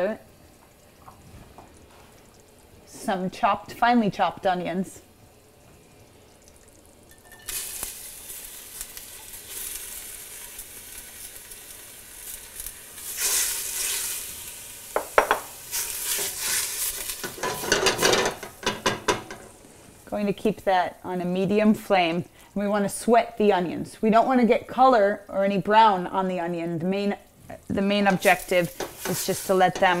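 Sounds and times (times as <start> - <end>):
onions sizzling in hot oil: 0.0 - 23.6, 25.0 - 30.0
knocks against a pot: 15.0 - 15.5, 17.4 - 19.5.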